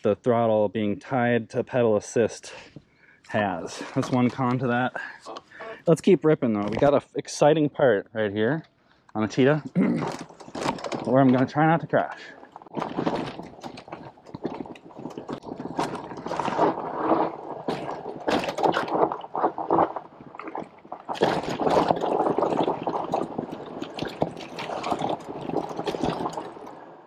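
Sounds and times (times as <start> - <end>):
tyres crunching on dirt: 9.3 - 26.8
bike rattling over bumps: 9.3 - 27.0.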